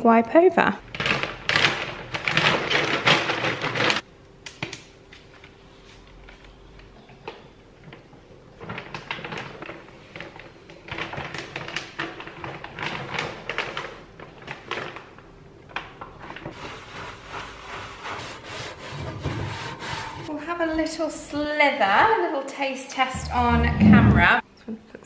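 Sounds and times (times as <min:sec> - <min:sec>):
sponge rubbing: 0:16.5 - 0:20.3.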